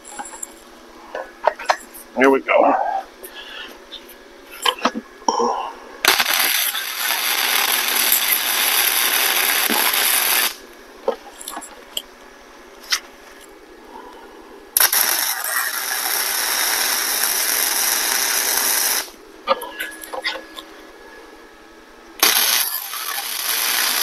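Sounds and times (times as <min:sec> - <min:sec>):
welder arc hissing: 0:06.0 - 0:10.7, 0:14.8 - 0:19.2, 0:22.2 - 0:24.0.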